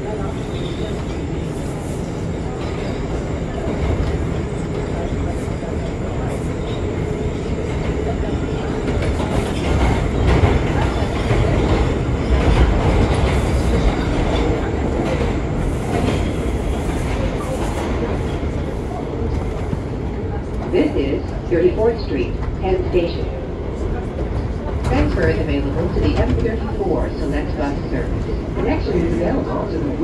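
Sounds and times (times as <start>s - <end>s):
subway train wheels rumbling: 0.0s - 30.0s
clickety-clack over rail joints: 8.9s - 18.4s.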